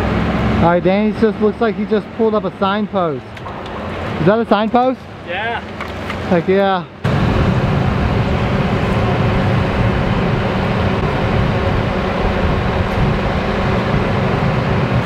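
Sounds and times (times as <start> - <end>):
loud rushing noise with rumble: 3.4 - 15.0.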